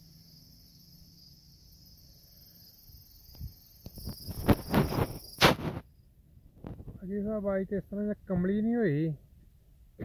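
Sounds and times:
crickets chirping: 0:00.0 - 0:10.0.

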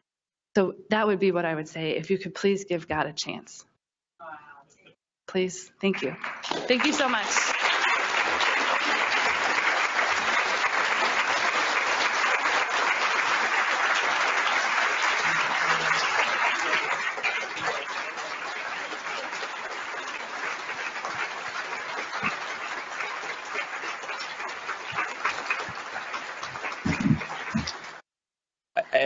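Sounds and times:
audience applauding: 0:05.9 - 0:28.0.

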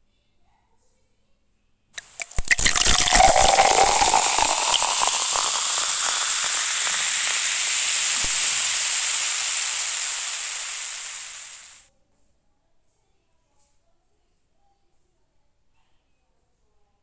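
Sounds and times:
liquid splashing into glass: 0:02.0 - 0:11.4
fizzing hiss of carbonation: 0:02.0 - 0:11.8.

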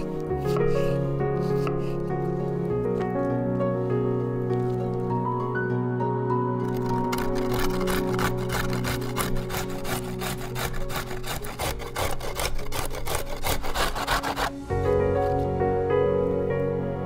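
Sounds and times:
soft background music: 0:00.0 - 0:17.0
carrot grating on grater: 0:06.7 - 0:15.4.

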